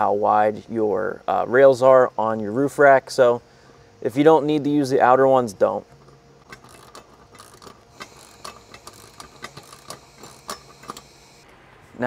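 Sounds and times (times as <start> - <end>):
ratchet wrench clicking: 5.9 - 11.4.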